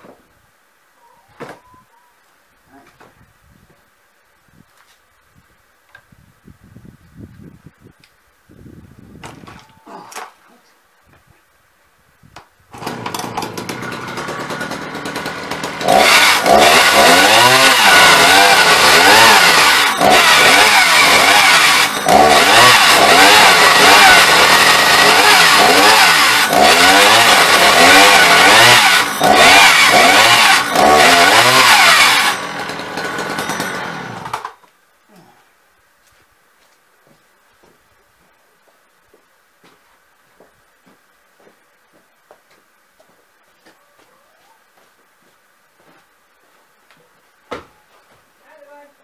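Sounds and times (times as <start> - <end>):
chainsaw cutting log: 12.7 - 34.6.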